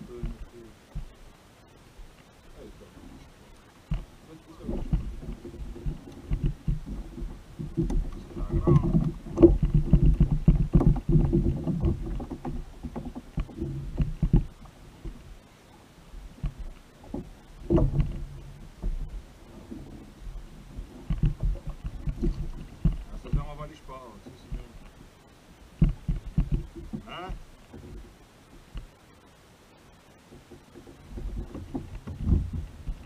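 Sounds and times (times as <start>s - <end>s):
water against kayak hull: 0.0s - 33.0s
knocks and thumps: 3.9s - 15.3s, 16.4s - 23.7s, 25.8s - 28.9s, 30.3s - 33.0s.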